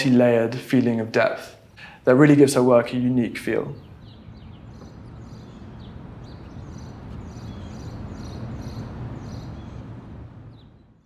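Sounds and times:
steady low rumble: 0:03.1 - 0:11.0.

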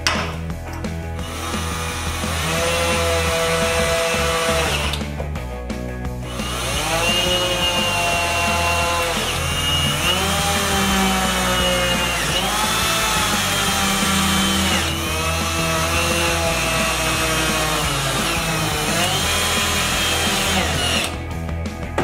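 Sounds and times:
cordless drill driving screws: 0:01.2 - 0:05.0, 0:06.3 - 0:21.2.

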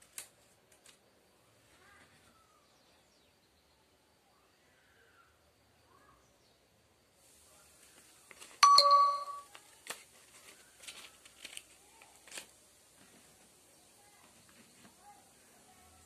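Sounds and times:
metallic ding: 0:08.6 - 0:09.4.

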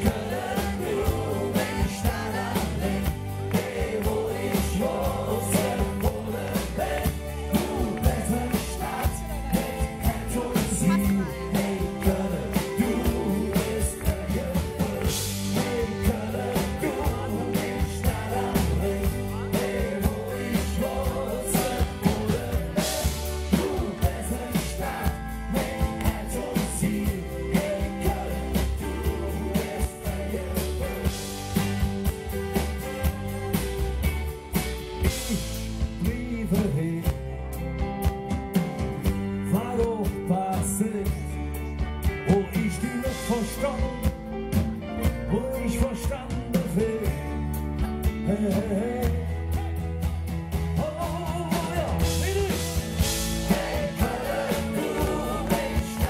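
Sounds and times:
person singing: 0:00.0 - 0:34.2, 0:42.1 - 0:44.1, 0:50.8 - 0:56.0
live rock band playing: 0:00.0 - 0:56.0.

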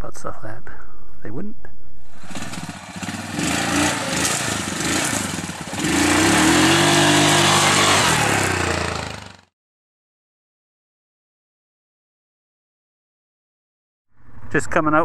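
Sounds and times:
atv engine pulling away: 0:02.2 - 0:09.5.

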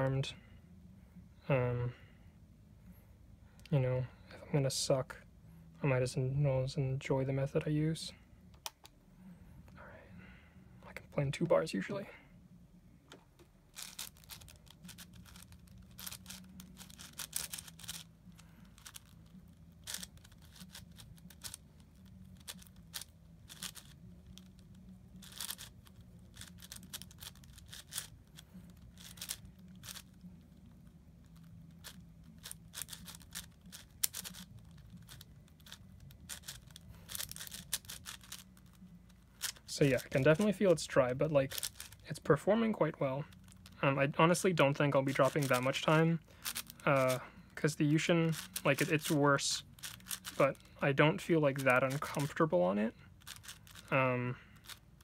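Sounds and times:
low steady hum: 0:00.0 - 0:55.0
plastic puzzle cube clicking: 0:13.8 - 0:18.1, 0:18.7 - 0:38.7, 0:41.5 - 0:42.0, 0:45.3 - 0:45.6, 0:46.4 - 0:47.1, 0:48.3 - 0:49.1, 0:49.8 - 0:50.4, 0:53.2 - 0:53.9.

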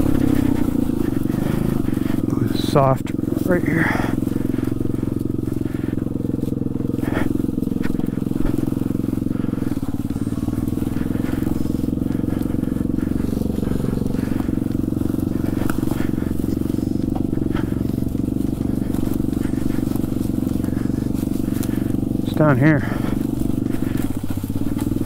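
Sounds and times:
small motorbike engine running: 0:00.0 - 0:25.0.

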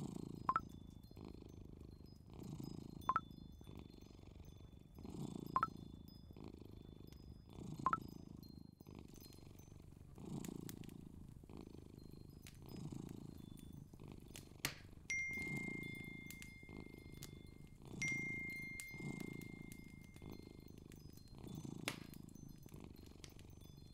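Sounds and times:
cat purring: 0:00.0 - 0:23.9
thin steady high tone: 0:15.1 - 0:23.9.

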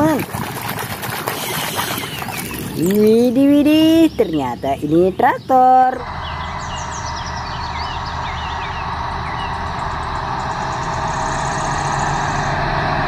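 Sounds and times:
tractor engine running: 0:06.0 - 0:13.0.

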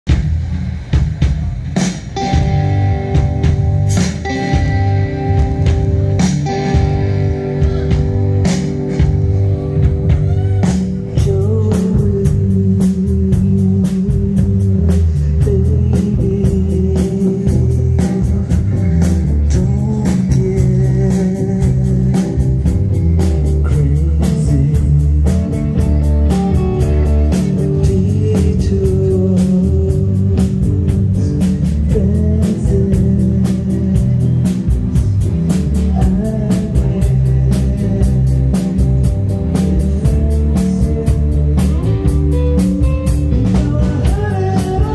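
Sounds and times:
drum kit beat: 0:00.0 - 0:44.9
electric bass: 0:00.0 - 0:44.9
electric guitar: 0:00.1 - 0:44.9.

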